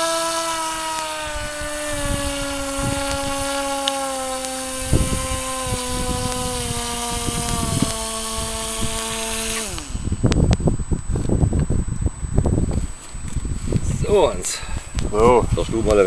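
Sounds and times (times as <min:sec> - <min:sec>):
model boat motor whining: 0:00.0 - 0:11.4.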